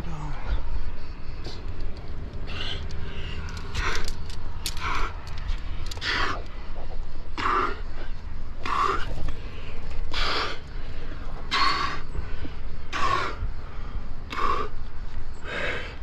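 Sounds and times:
hard rhythmic breathing: 0.2 - 16.0.

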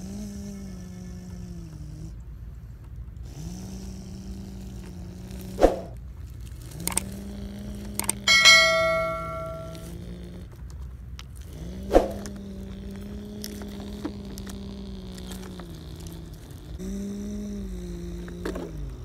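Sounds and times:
click and bell-like ding: 8.3 - 9.9
sharp clack: 8.3 - 9.9.

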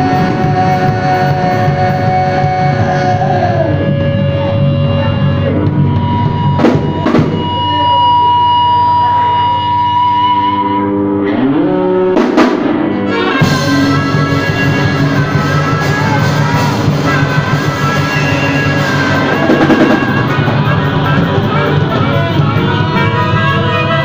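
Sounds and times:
harmonica wailing: 0.0 - 12.2, 12.9 - 24.0
live band playing: 0.0 - 24.0
drum crash: 5.6 - 8.0, 12.2 - 24.0.

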